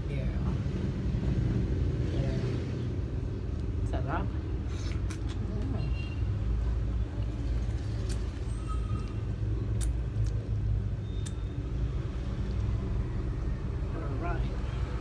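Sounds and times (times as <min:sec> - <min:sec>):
person sucking and chewing: 0:04.7 - 0:05.4.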